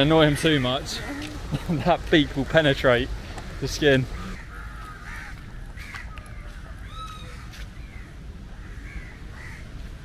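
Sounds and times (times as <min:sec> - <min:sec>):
crows cawing: 0:00.0 - 0:01.4, 0:03.5 - 0:08.0, 0:08.6 - 0:09.7.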